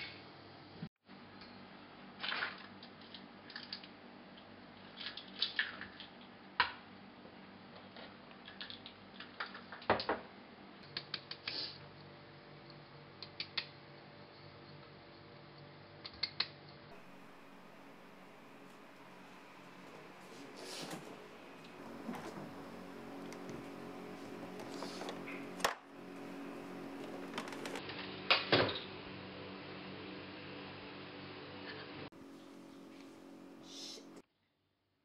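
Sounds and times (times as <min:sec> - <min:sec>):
low steady hum: 0:16.9 - 0:27.8, 0:32.1 - 0:34.2.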